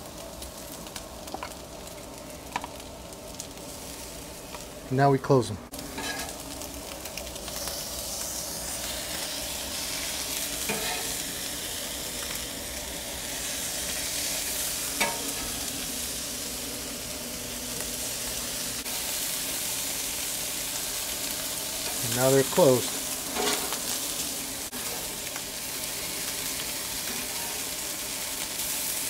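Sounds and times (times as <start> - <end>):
tacos sizzling on a griddle: 0.0 - 29.0
metal spatula scraping griddle: 5.8 - 6.4, 10.6 - 11.2, 23.2 - 24.0.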